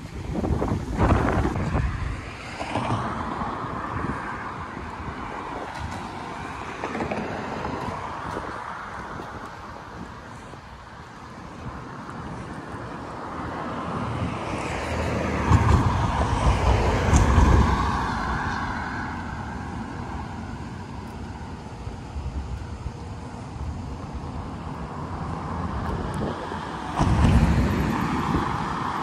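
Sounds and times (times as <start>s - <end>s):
car passing: 0.0s - 29.0s
wind buffeting microphone: 0.0s - 29.0s.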